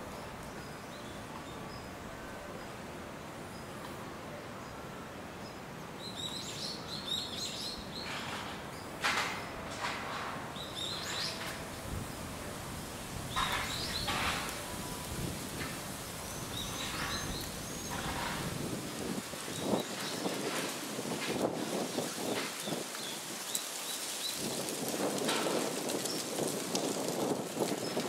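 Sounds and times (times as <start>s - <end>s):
rustling: 8.0s - 28.0s
small birds chirping: 13.3s - 14.9s, 15.5s - 20.7s.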